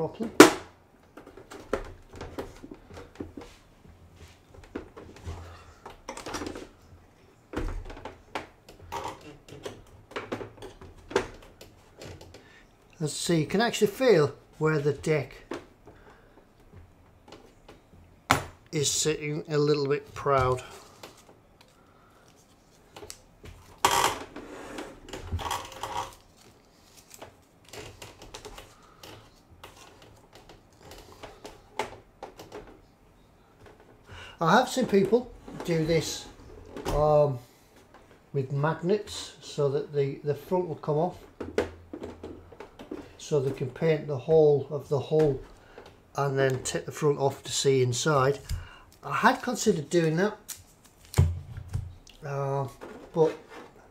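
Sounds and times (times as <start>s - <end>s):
plastic parts clicking and rustling: 25.1s - 32.9s.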